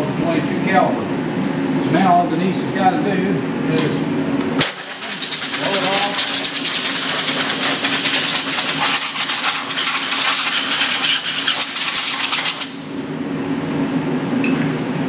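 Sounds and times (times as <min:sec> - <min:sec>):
compressed air hissing: 0:04.6 - 0:12.8
metallic clinks of parts: 0:07.5 - 0:12.6.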